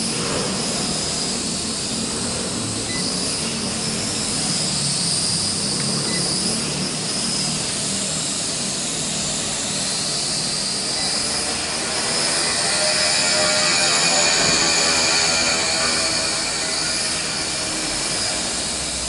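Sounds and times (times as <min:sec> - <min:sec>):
quadcopter propellers buzzing: 0:00.0 - 0:19.0.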